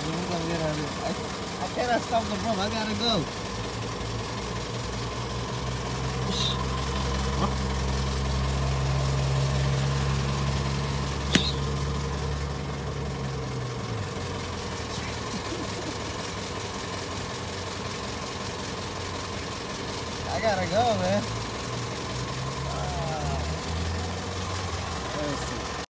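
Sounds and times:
car engine idling: 0.0 - 25.9
sharp click: 11.3 - 11.7.

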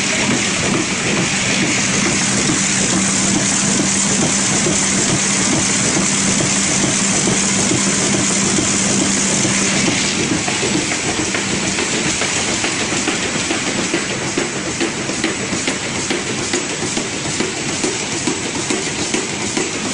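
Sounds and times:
steady hum: 0.0 - 18.6
machine belts and rollers whirring: 0.0 - 19.9.

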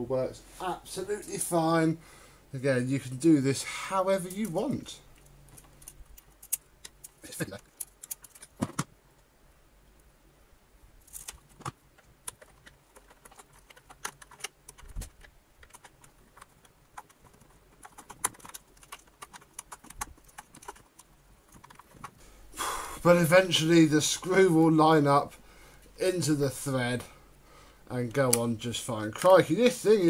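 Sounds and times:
small metal clicks and taps: 5.2 - 8.8.

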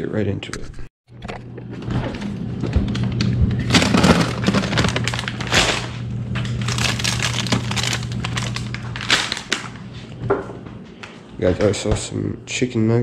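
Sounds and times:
steady low hum: 1.1 - 13.0
freezer door opening: 1.7 - 9.6
frozen food bags crackling: 3.0 - 9.9.

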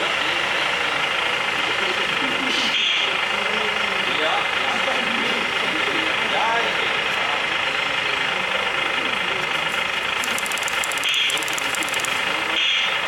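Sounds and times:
diesel engine sound from speakers: 0.0 - 13.0
fast high ticking: 10.1 - 12.6.

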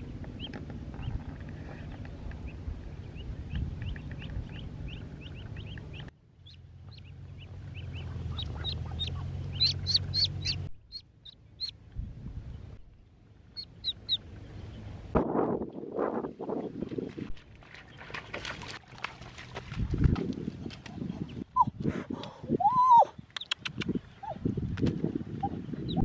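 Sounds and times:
ducklings peeping: 0.0 - 11.8, 13.5 - 14.9, 22.6 - 26.0
low steady rumble: 0.0 - 16.5.

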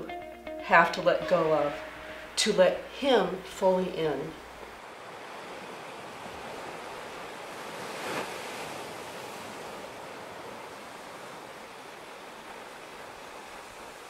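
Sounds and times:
waves washing onto rocky shore: 4.4 - 14.0.

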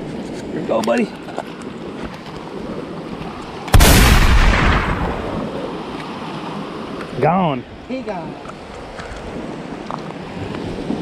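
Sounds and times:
surf washing against rocks: 0.0 - 11.0
wave crashing on rocks: 3.5 - 7.4.

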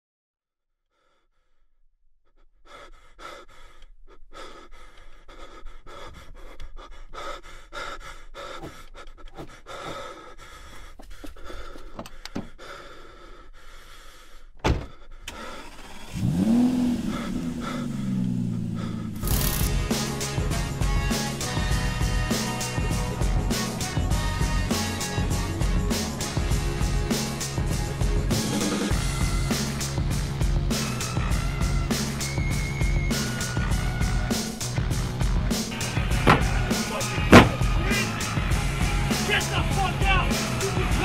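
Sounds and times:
heavy panting breaths: 0.9 - 15.9, 16.5 - 32.3, 33.1 - 41.0
loud thump: 36.2 - 36.7, 37.3 - 37.8.

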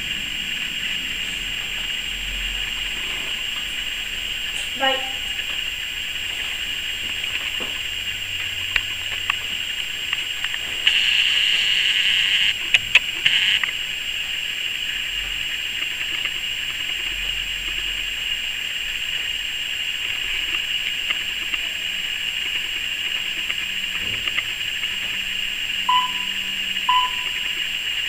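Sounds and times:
steady high hiss: 0.0 - 28.0
short electronic beeps: 25.9 - 27.5
pendulum clock ticking: 25.9 - 27.6.

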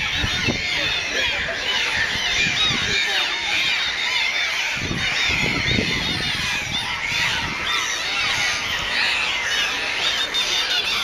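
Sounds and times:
dolphins whistling and squealing: 0.0 - 11.0.

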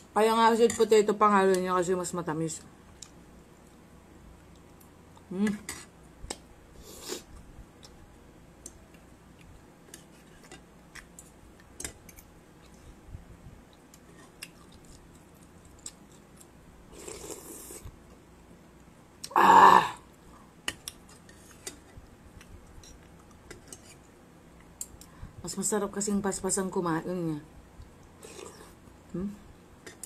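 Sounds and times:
chewing: 13.7 - 17.9.

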